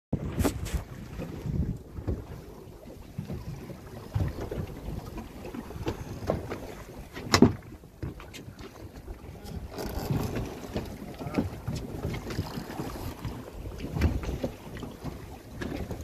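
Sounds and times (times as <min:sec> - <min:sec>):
water moving along hull: 0:00.1 - 0:16.0.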